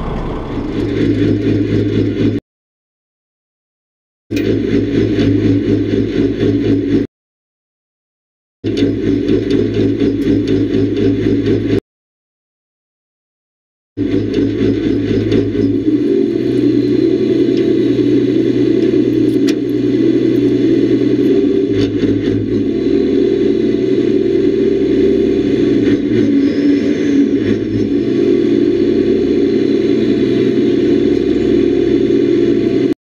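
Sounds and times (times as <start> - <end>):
boat engine hum: 0.0 - 2.4, 14.0 - 33.0.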